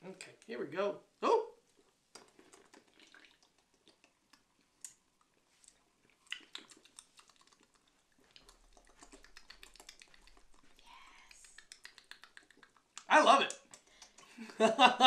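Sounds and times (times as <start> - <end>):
sipping and swallowing: 1.8 - 14.4.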